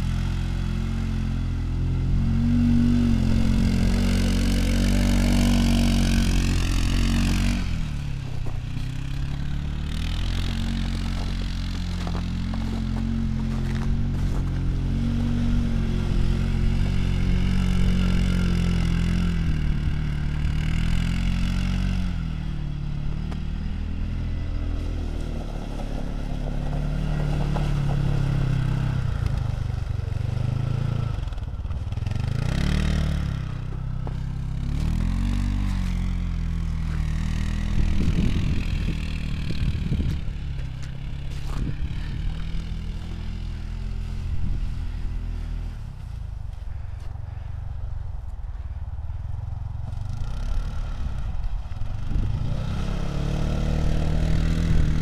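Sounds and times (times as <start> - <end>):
off-road vehicle engine revving: 0.0 - 47.5, 49.8 - 55.0.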